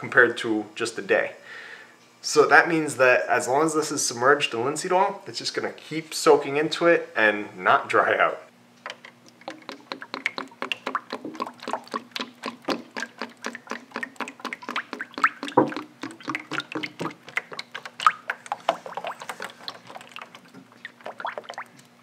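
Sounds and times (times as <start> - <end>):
oil pouring and splashing: 8.9 - 22.0.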